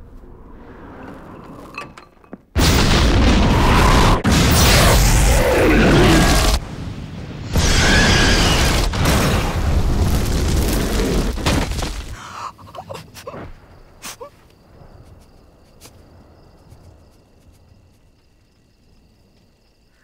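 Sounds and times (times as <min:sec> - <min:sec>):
flames rushing and booming: 0:02.6 - 0:12.2.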